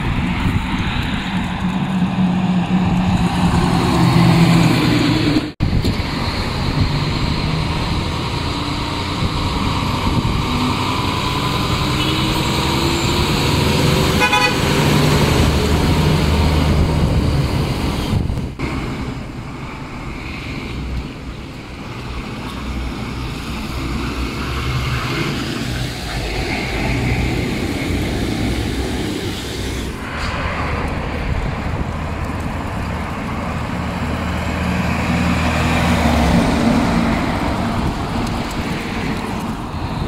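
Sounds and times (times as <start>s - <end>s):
truck engine pitch rising: 0.0s - 19.2s, 23.0s - 40.0s
diesel trucks driving past: 0.0s - 40.0s
short high horn toot: 14.2s - 14.6s.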